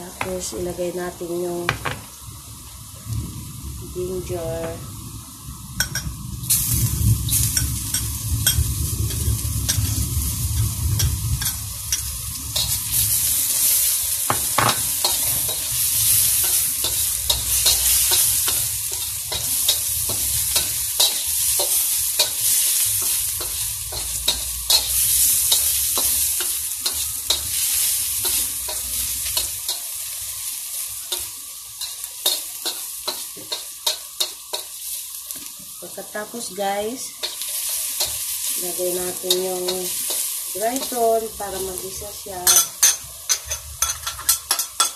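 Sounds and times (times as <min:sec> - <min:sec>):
garlic sizzling in hot oil: 0:00.0 - 0:44.9
spatula scraping a wok: 0:07.4 - 0:35.1, 0:37.0 - 0:44.9.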